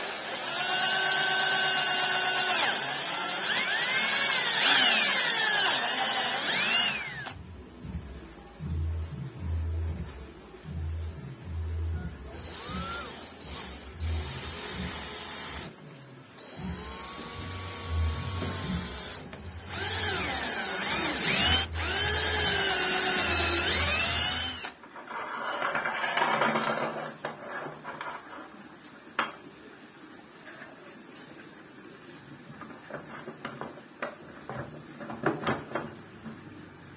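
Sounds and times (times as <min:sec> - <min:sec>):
power drill motor whining: 0:00.0 - 0:07.4, 0:12.3 - 0:15.7, 0:16.4 - 0:24.8.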